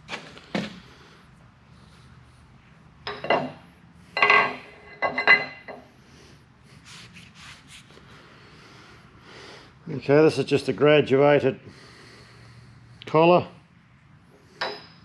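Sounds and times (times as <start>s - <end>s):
metal parts clinking and knocking: 3.1s - 3.6s, 4.2s - 5.9s.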